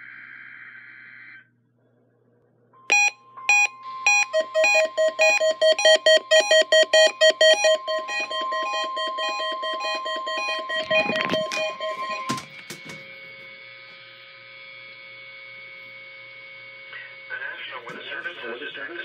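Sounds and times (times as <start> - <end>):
electronic alarm beeps: 2.9 - 13.0
steady warning alarm tone: 2.9 - 14.0.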